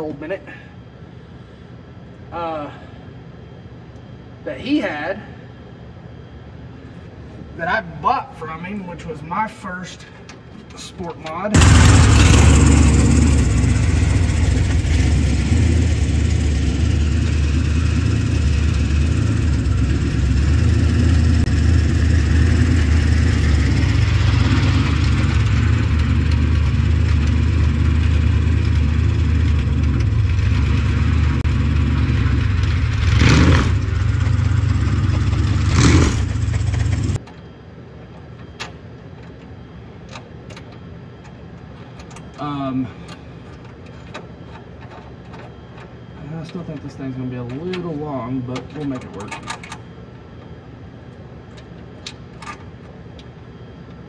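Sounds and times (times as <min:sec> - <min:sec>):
race car engine droning: 0:11.5 - 0:37.2
engine throttle blips: 0:11.5 - 0:37.3.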